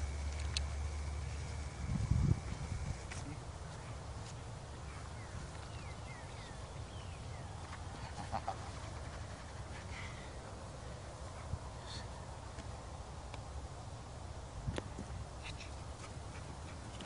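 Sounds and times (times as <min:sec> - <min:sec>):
wind rumble on microphone: 0:01.3 - 0:03.5.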